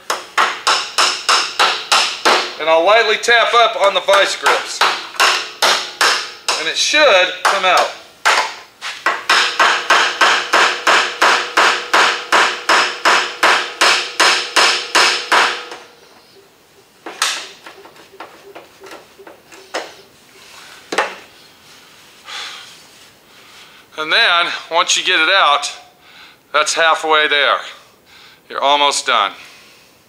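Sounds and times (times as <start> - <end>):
hammer tapping on metal: 0.0 - 2.5, 4.1 - 6.7, 7.4 - 15.9, 17.1 - 20.0.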